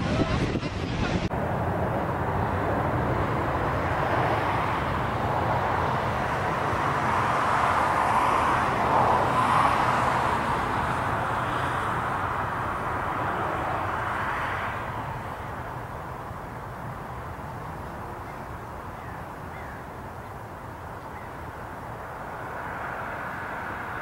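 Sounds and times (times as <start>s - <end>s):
distant jet engines rushing: 0.0s - 24.0s.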